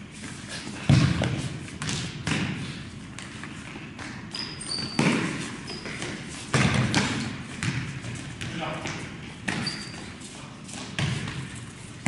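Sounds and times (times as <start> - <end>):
ball kicked echoing in hall: 0.8 - 3.3, 3.9 - 10.2, 10.8 - 12.0
sneaker squeaks on floor: 4.3 - 7.8, 8.4 - 11.6.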